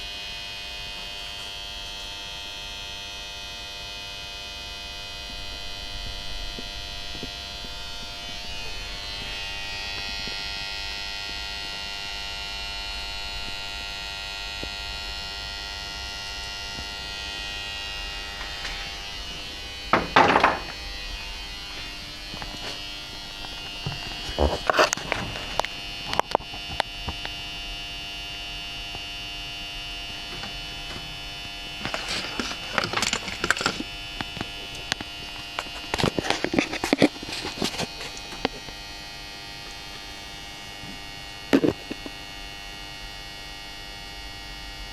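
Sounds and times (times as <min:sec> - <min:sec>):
electrical hum with high whine: 0:00.0 - 0:44.9
short clattering knocks: 0:19.9 - 0:20.8.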